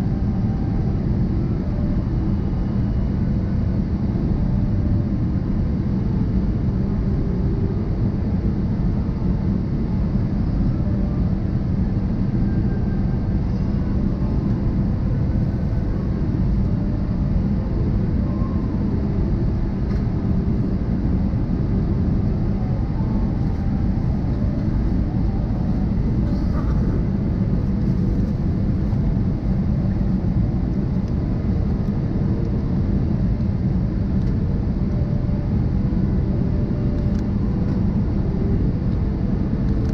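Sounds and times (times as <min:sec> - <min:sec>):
jet engines and airflow in cabin: 0:00.0 - 0:39.9.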